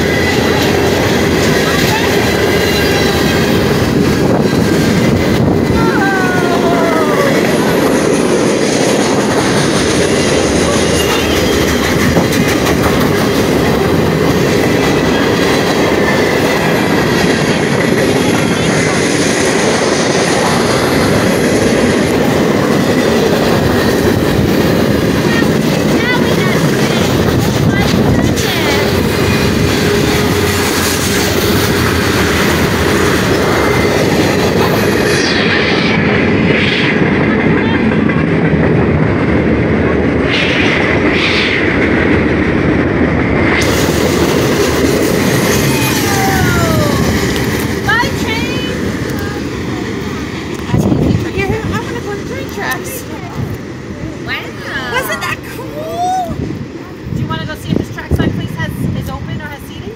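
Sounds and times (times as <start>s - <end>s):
freight train cars rumbling past: 0.0s - 59.9s
wheels clattering over rail joints: 7.5s - 34.7s.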